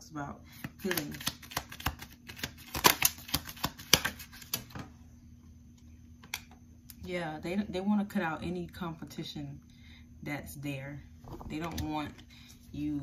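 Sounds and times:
cards shuffling: 0:00.7 - 0:04.8.

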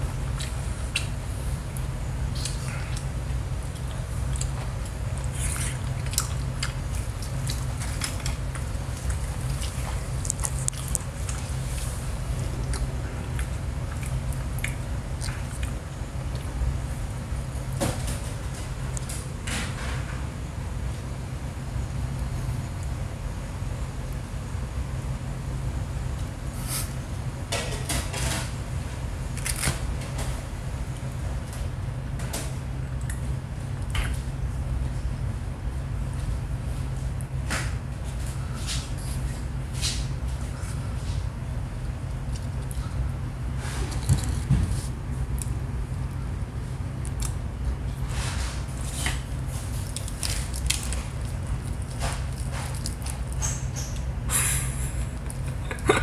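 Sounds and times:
low hum: 0:00.0 - 0:56.0
person chewing crunchy food: 0:00.1 - 0:16.6.

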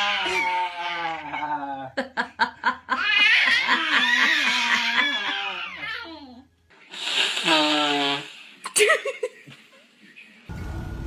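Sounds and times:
person laughing: 0:08.7 - 0:09.5.

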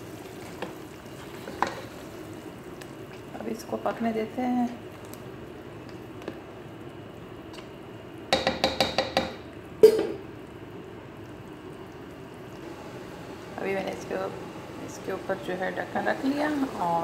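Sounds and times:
metal spoon tapping a pot: 0:08.3 - 0:10.2.

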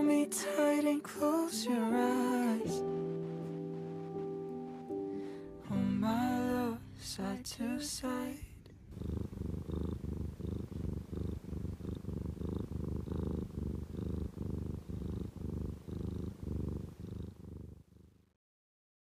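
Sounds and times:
cat purring: 0:01.9 - 0:05.4, 0:08.9 - 0:18.4.

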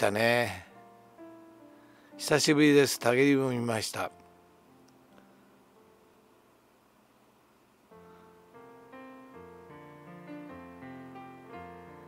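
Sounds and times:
soft piano notes: 0:07.9 - 0:12.0.

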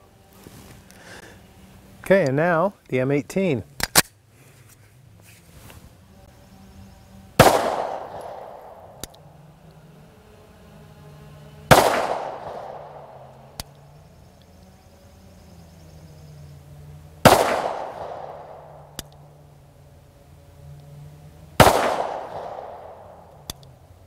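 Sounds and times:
pistol shots ringing out: 0:07.4 - 0:08.8, 0:11.7 - 0:13.1, 0:17.2 - 0:18.8, 0:21.6 - 0:23.0.

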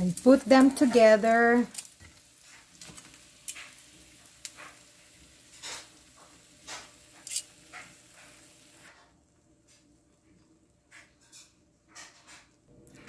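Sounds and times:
fish frying in oil: 0:00.0 - 0:08.9.

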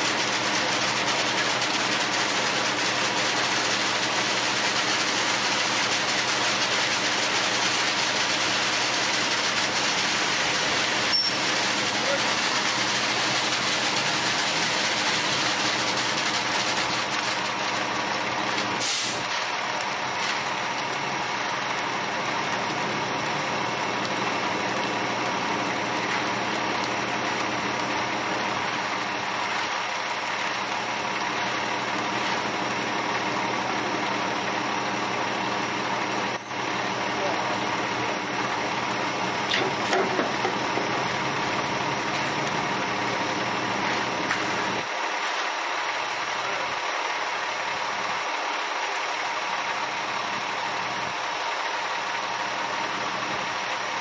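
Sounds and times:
diesel engine running: 0:00.0 - 0:54.0
short scrape: 0:18.8 - 0:19.3.

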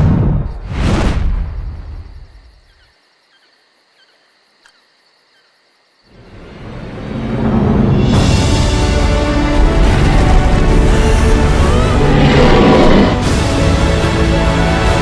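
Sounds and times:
crickets chirping: 0:00.1 - 0:07.9
music: 0:06.4 - 0:15.0.

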